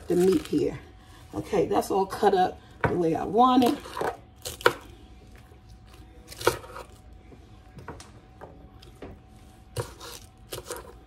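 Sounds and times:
knife slicing cabbage on board: 6.3 - 6.9, 9.7 - 11.0.

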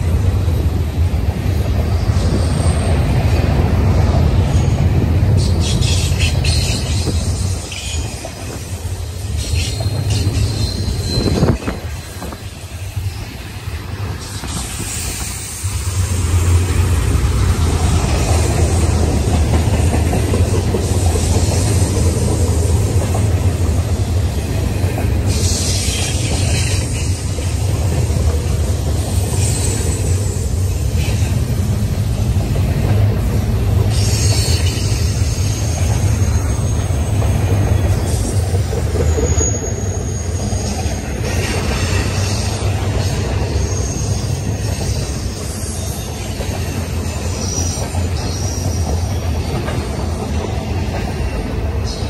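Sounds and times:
train wheels rumbling on rail: 0.0 - 52.0
high wheel squeal: 9.2 - 12.3, 33.9 - 49.2.

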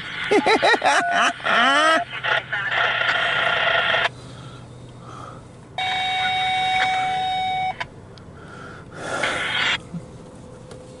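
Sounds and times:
radio hiss: 1.9 - 4.1, 9.1 - 9.8.

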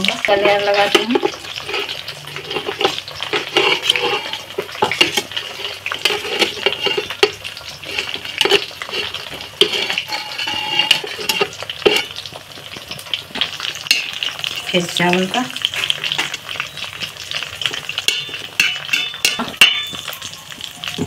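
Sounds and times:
spoon scraping steel pan: 0.3 - 12.2, 13.8 - 14.8, 18.0 - 20.2.

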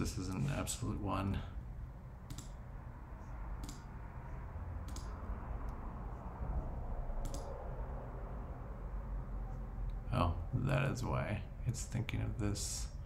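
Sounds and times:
low steady hum: 0.0 - 13.0
computer mouse clicks: 2.3 - 2.6, 3.6 - 3.9, 4.8 - 5.8, 7.2 - 7.6.

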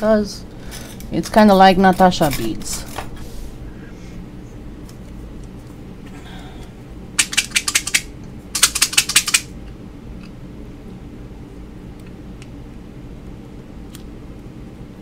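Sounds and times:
faint steady hum: 0.0 - 15.0
rapid light clicks: 7.2 - 9.5.

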